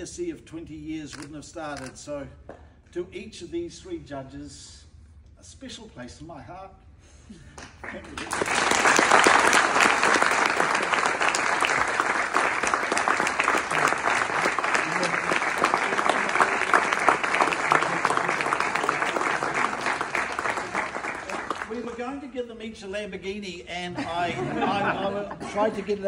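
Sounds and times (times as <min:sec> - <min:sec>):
audience applauding: 0:07.6 - 0:22.1.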